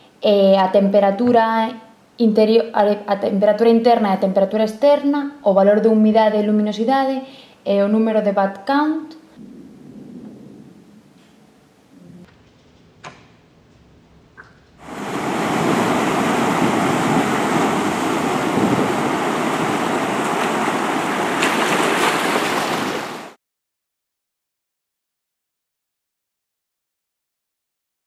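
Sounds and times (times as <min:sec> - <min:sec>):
wind: 0:14.4 - 0:23.4
sea surf rushing: 0:14.8 - 0:23.4.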